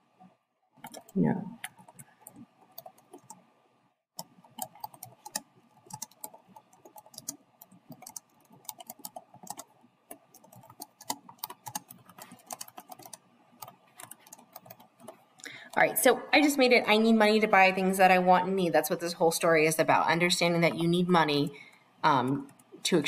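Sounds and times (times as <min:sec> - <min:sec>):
computer keyboard typing: 0:00.8 - 0:03.4, 0:04.2 - 0:15.8.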